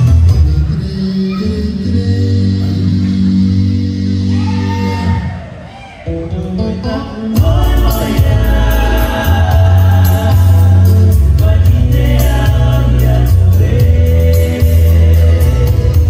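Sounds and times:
heavy bass line: 0.0 - 5.4, 6.4 - 16.0
group singing in chorus: 7.3 - 16.0
steady beat: 7.4 - 16.0.

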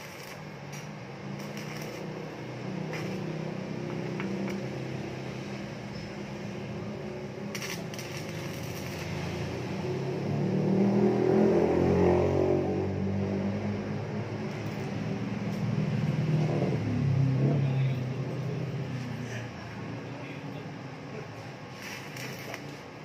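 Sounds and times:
arc welder crackling and buzzing: 0.0 - 10.6, 21.4 - 23.0.

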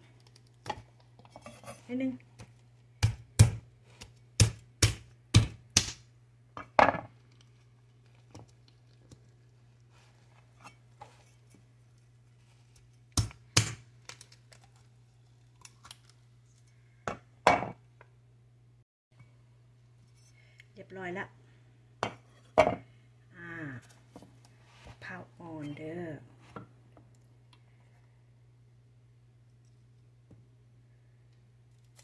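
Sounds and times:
knife chopping coconut shell: 3.0 - 6.0, 13.1 - 14.2.

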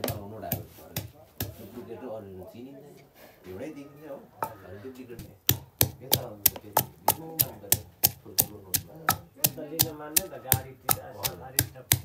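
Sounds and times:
pestle pounding in wooden mortar: 0.0 - 1.8, 5.2 - 12.0.

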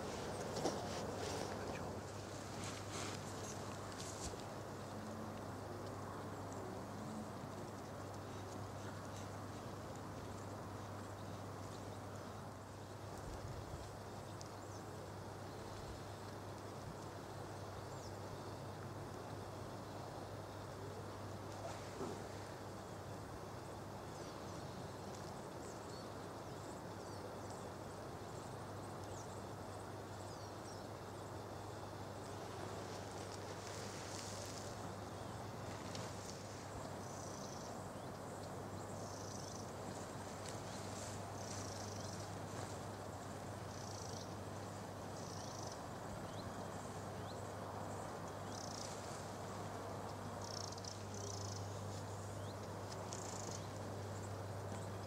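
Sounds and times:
insects chirping: 19.4 - 55.0.

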